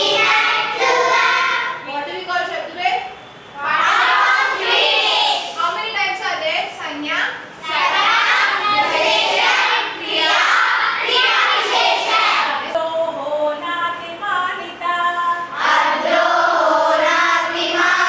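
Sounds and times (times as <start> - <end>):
girls singing in unison: 0.0 - 1.8, 7.6 - 18.0
young woman speaking: 1.8 - 3.2, 5.6 - 7.6.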